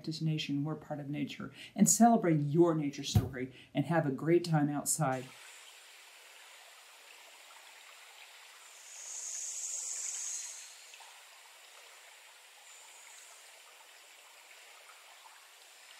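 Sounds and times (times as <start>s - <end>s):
high-pitched hiss: 8.4s - 11.6s, 12.2s - 13.9s.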